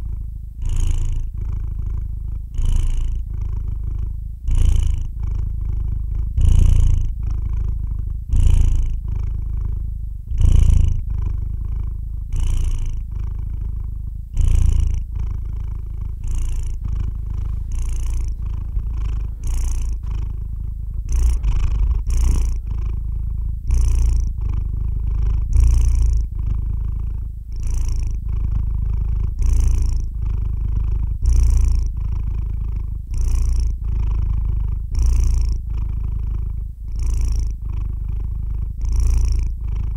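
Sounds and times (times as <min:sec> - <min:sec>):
cat purring: 0:00.0 - 0:39.9.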